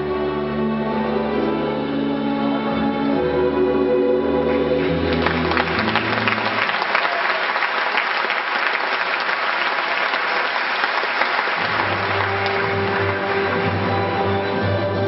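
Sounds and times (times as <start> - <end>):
low backing music: 0.0 - 6.3
crowd applauding: 4.5 - 15.0.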